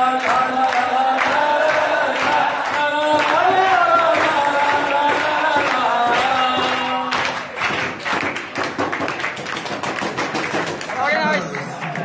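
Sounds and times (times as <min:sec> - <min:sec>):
man singing into a microphone: 0:00.0 - 0:07.4
crowd clapping: 0:00.0 - 0:12.0.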